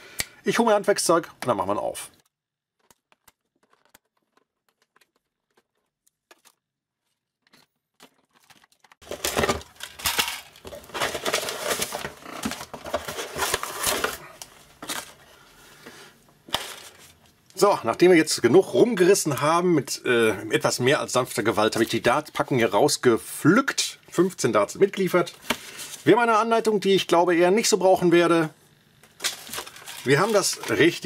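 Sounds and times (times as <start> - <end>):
cardboard tearing and crinkling: 2.7 - 15.2, 29.2 - 31.0.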